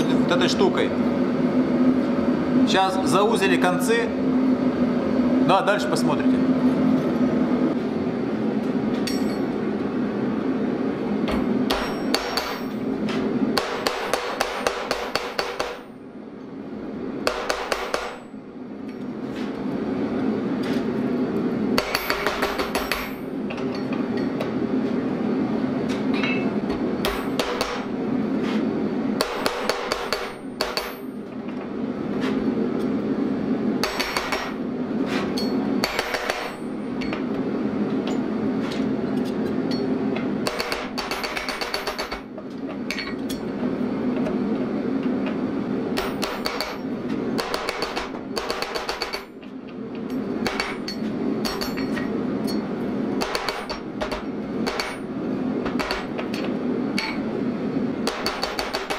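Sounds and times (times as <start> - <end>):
hammer striking hot steel: 9.0 - 9.6, 11.2 - 12.8, 13.5 - 15.9, 17.2 - 18.3, 21.8 - 24.4, 26.1 - 27.9, 29.2 - 31.1, 33.8 - 34.6, 35.2 - 37.2, 39.7 - 42.3, 46.0 - 49.4, 50.0 - 57.3, 58.0 - 58.9.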